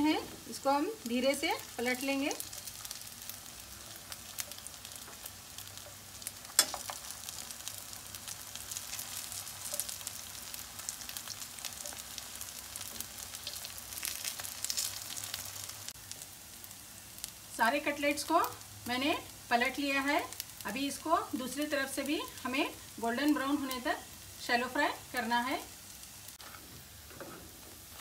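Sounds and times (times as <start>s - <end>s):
food sizzling in hot oil: 0.0s - 28.0s
wooden spatula turning food: 0.3s - 15.9s.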